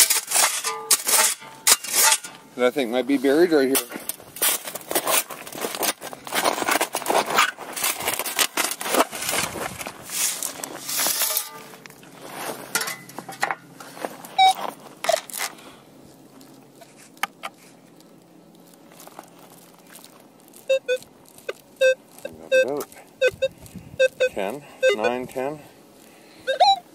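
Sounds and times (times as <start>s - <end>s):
metal scoop scraping gravel: 0.0s - 15.6s.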